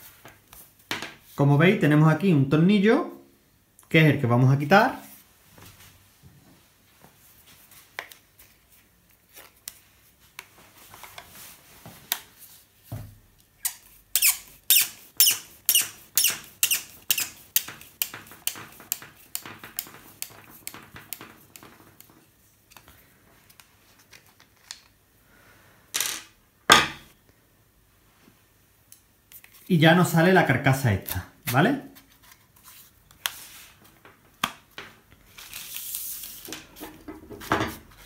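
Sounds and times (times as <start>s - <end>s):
screw squeaking as it turns: 13.6s - 17.4s.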